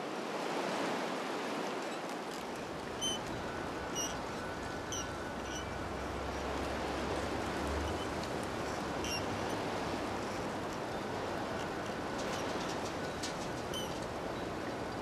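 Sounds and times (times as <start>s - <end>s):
rushing outdoor ambience: 0.0s - 15.0s.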